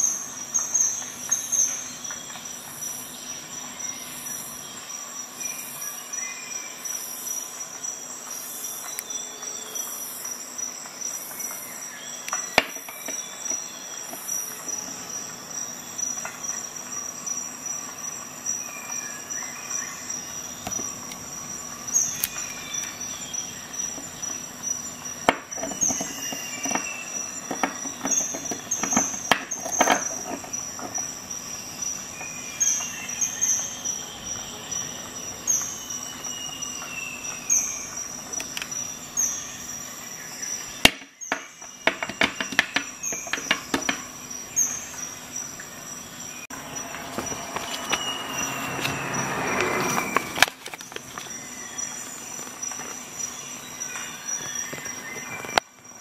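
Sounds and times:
steady high-pitched whine: 0.0s - 56.0s.

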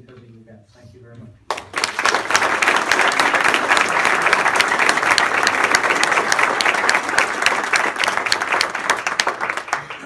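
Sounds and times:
audience clapping: 1.5s - 10.0s.

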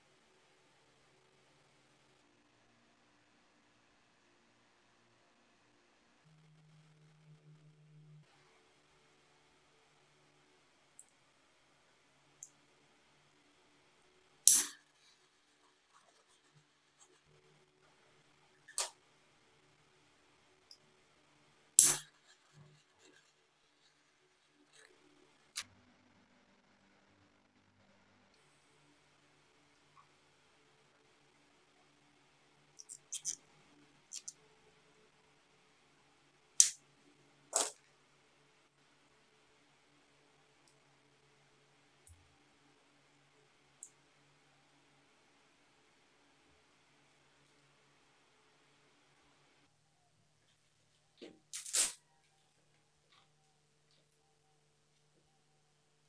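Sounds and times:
zip tie clicking tight: 51.5s - 52.0s.

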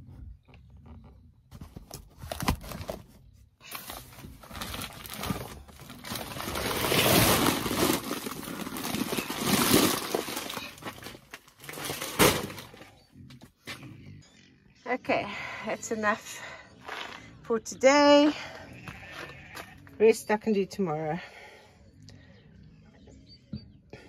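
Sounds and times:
sacks scraping and rustling: 1.8s - 12.8s
sacks knocking: 3.6s - 12.8s.

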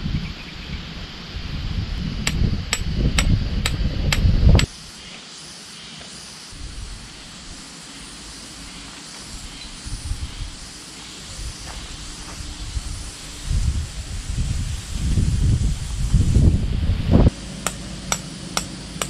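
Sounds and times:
wind rumble on microphone: 0.0s - 4.9s, 6.6s - 7.6s, 8.6s - 17.4s
sharp metallic taps: 17.6s - 19.0s.

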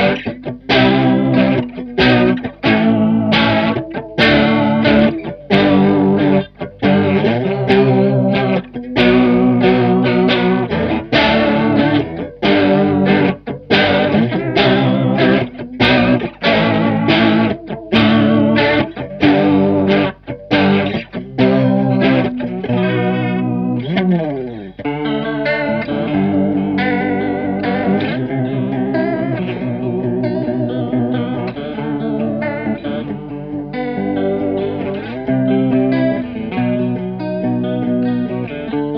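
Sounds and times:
electric guitar chord riff with chorus: 0.0s - 38.9s.

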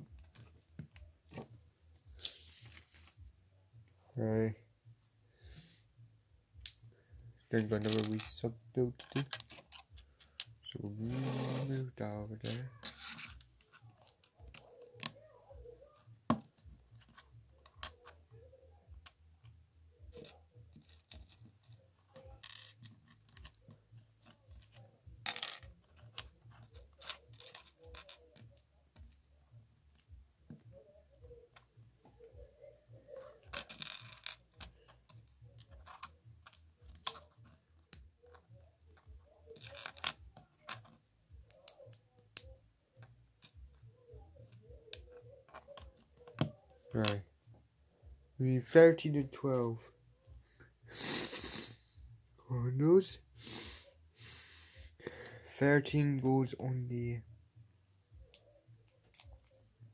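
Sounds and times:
plastic pieces clicking together: 25.3s - 28.6s.

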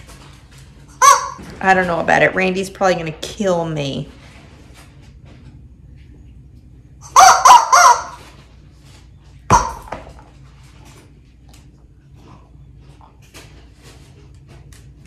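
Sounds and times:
squeaky dog toy squawking: 1.0s - 1.4s, 7.0s - 8.3s, 9.5s - 9.9s
toy dropping on tile floor: 9.5s - 10.3s.

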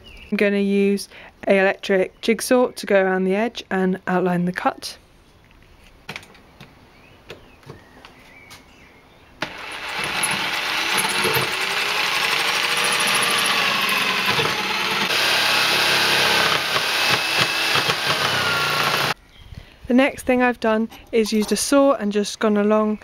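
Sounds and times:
electric jigsaw cutting wood: 9.4s - 19.2s.

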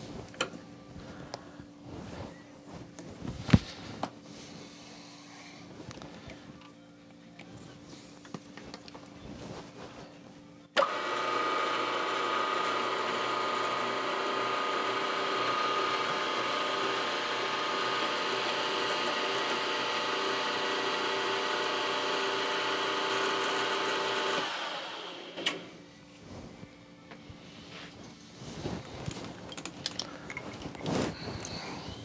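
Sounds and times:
milling machine motor whining: 10.8s - 25.7s
motor spinning down: 10.8s - 25.7s.

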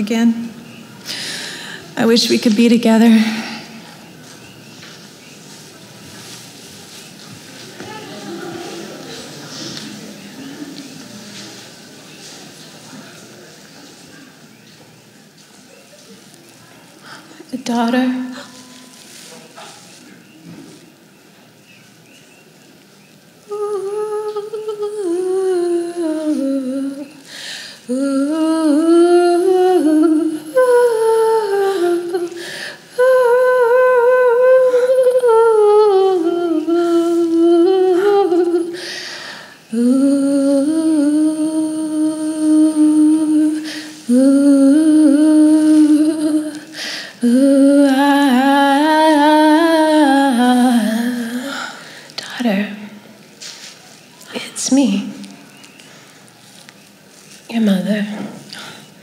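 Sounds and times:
woman singing wordless melody: 0.0s - 3.9s, 17.0s - 19.3s, 23.4s - 53.0s, 57.4s - 58.9s.

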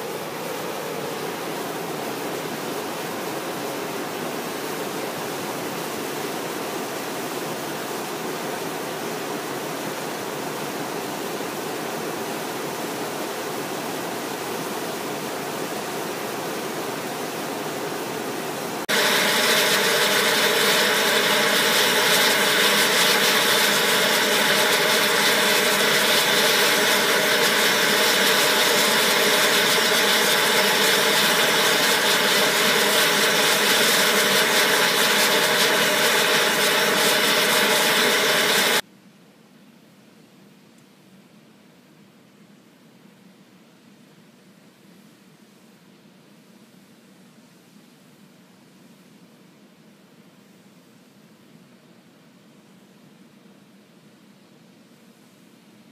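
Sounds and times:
fumarole steam hissing: 0.0s - 38.8s.

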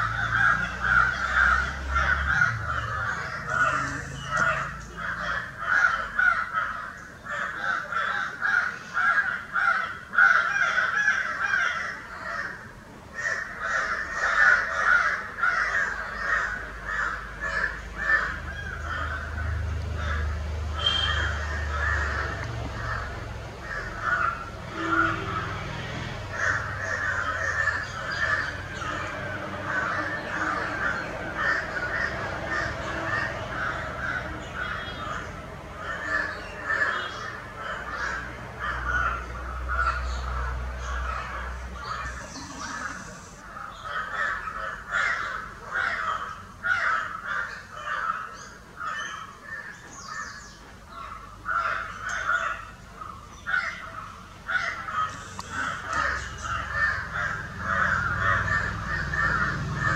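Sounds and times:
birds short harsh calls: 0.0s - 59.9s
crows cawing: 0.0s - 59.9s.

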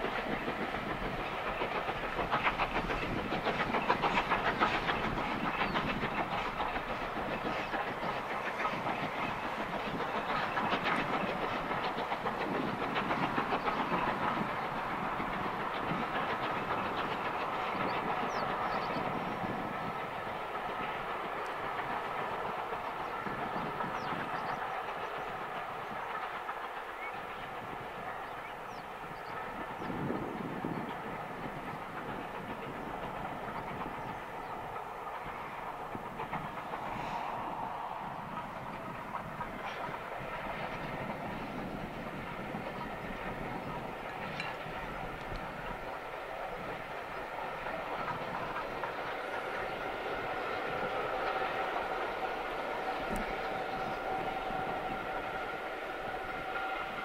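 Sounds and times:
steam locomotive chuffing: 0.0s - 57.0s.

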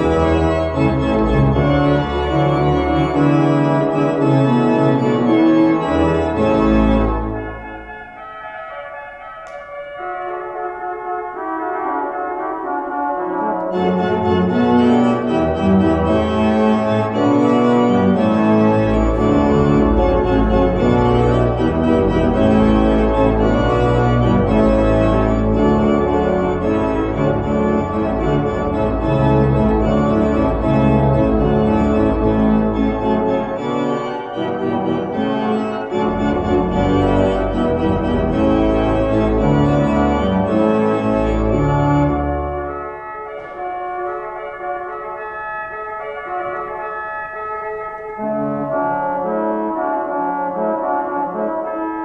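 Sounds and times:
deep organ bass line: 0.0s - 8.0s, 13.7s - 42.8s
organ chords: 0.0s - 52.0s.

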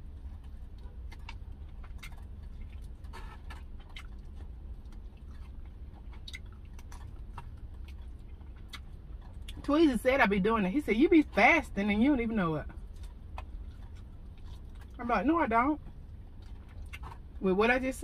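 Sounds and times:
person chewing food: 0.0s - 9.7s, 12.7s - 15.0s, 15.8s - 17.4s
steady low hum: 0.0s - 18.0s.

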